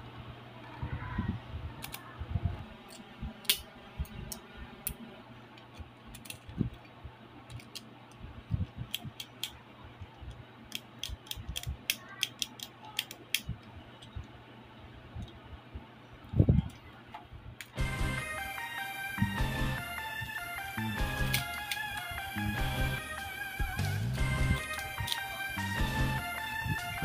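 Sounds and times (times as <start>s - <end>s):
plastic parts clicking and rattling: 5.6s - 14.3s.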